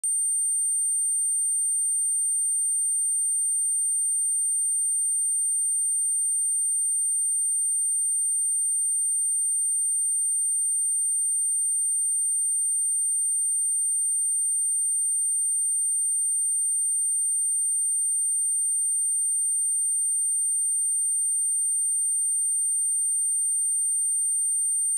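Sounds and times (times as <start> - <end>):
high-pitched sine test tone: 0.0 - 5.7, 15.0 - 24.9.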